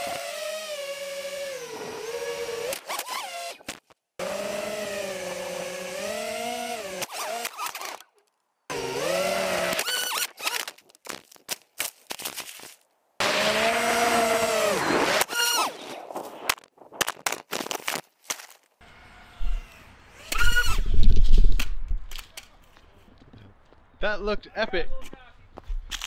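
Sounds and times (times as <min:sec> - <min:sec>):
drone propellers whining: 0:13.2 - 0:16.0, 0:18.8 - 0:21.2.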